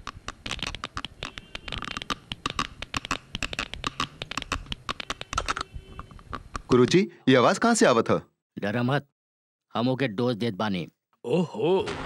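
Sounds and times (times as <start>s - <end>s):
sharp crackling clicks: 0.0s - 6.7s.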